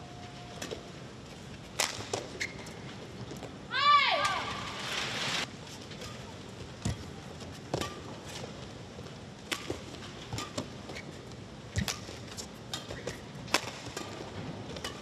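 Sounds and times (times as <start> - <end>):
steady arena hum: 0.0 - 15.0
racket striking shuttlecock: 1.8 - 2.3, 9.4 - 10.8, 11.8 - 15.0
shoe squeaks on court: 2.3 - 2.8.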